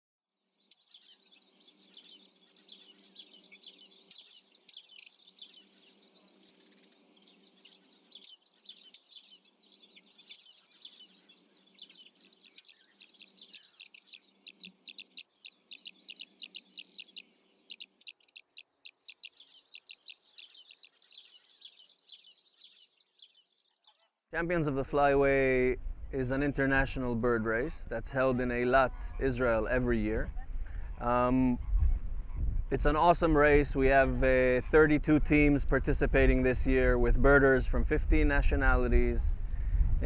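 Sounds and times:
small birds chirping: 0:00.3 - 0:24.3.

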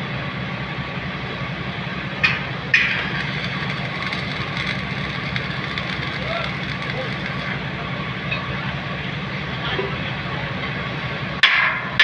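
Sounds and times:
low hum: 0:01.2 - 0:09.5
welding arc crackling: 0:02.2 - 0:08.2.

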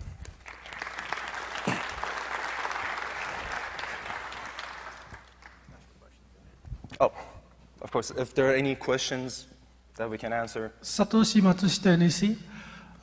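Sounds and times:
audience applauding: 0:00.3 - 0:05.7.

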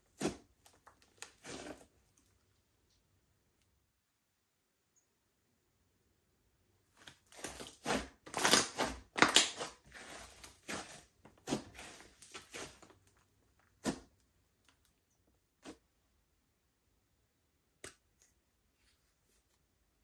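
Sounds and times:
slime squishing: 0:00.0 - 0:02.3, 0:07.0 - 0:14.8.

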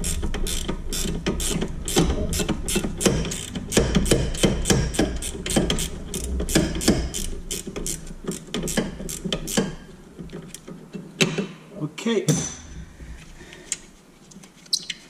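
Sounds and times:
ratchet wrench clicking: 0:00.0 - 0:09.8
low steady hum: 0:00.0 - 0:14.6.

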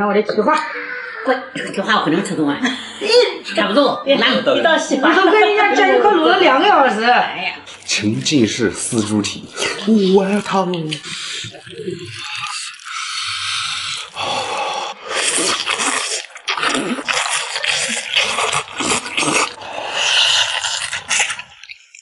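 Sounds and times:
wet slurping and chewing: 0:07.6 - 0:22.0.

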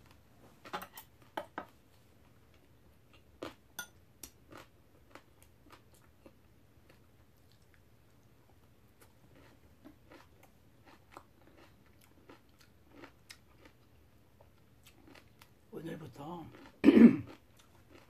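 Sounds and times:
chewing: 0:04.2 - 0:15.6, 0:16.5 - 0:18.0.

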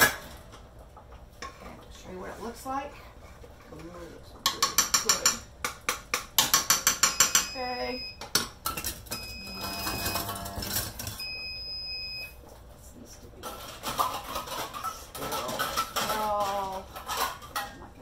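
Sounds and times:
high electronic beep: 0:09.1 - 0:10.5.

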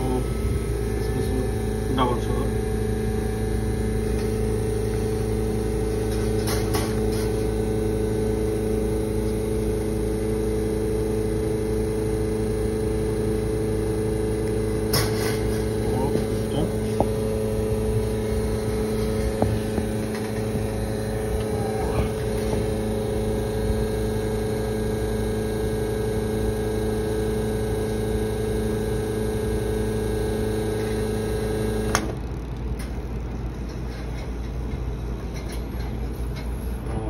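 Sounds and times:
espresso machine pump humming: 0:00.0 - 0:33.6
low rumble: 0:36.8 - 0:37.0.

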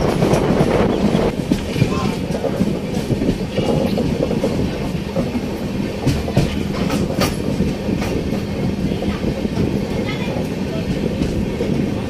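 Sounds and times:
train wheels rumbling on rails: 0:00.0 - 0:12.0.

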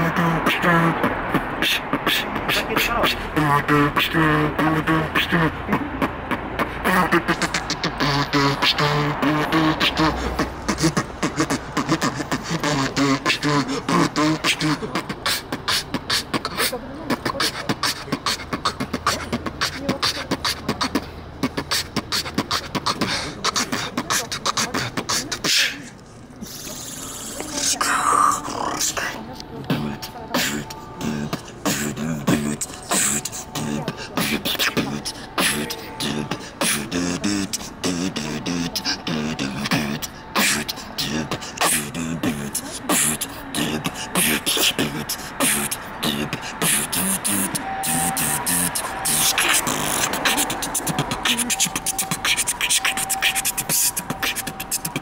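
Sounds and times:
person beatboxing: 0:00.0 - 0:55.0
pitched vocal tones bending: 0:00.0 - 0:55.0
mouth turntable scratch effects: 0:41.3 - 0:55.0.

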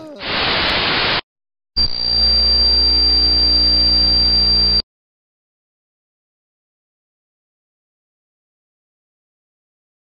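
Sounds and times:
tv static hiss: 0:00.0 - 0:01.2, 0:01.8 - 0:04.8
electrical buzz with high whine: 0:00.2 - 0:01.2, 0:01.8 - 0:04.8.

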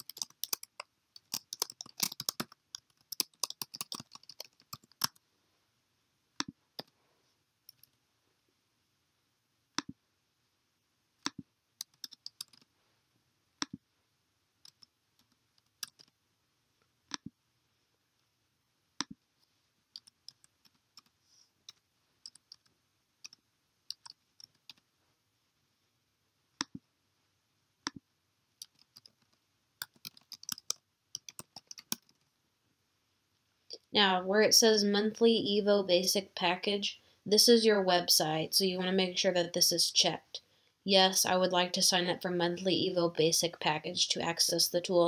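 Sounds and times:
computer keyboard typing: 0:00.0 - 0:05.2, 0:11.3 - 0:12.7, 0:14.6 - 0:16.2, 0:19.9 - 0:24.8, 0:28.6 - 0:32.2
computer mouse clicks: 0:00.0 - 0:05.2, 0:06.4 - 0:07.0, 0:11.2 - 0:12.7, 0:14.6 - 0:16.2, 0:17.1 - 0:17.3, 0:19.9 - 0:24.8, 0:28.6 - 0:32.3.

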